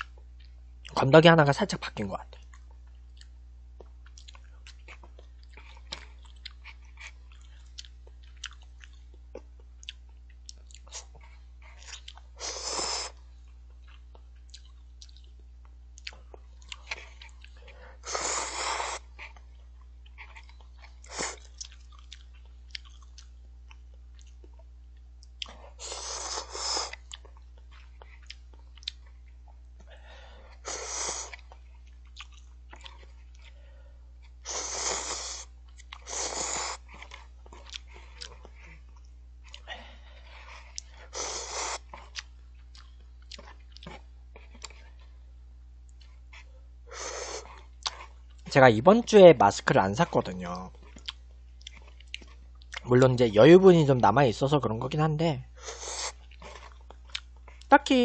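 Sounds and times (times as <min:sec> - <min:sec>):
chewing: 0:02.3 - 0:45.2, 0:45.9 - 0:48.6, 0:50.2 - 0:52.9, 0:55.6 - 0:57.7
slurping noodles: 0:12.4 - 0:13.2, 0:18.0 - 0:19.1, 0:25.7 - 0:27.0, 0:34.5 - 0:36.9.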